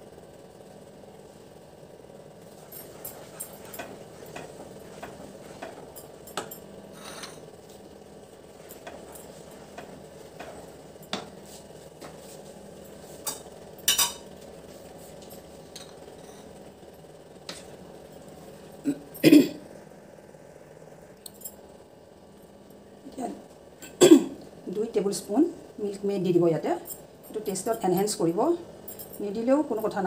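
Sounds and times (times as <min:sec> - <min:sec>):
spatula scraping a pan: 0:06.9 - 0:07.4.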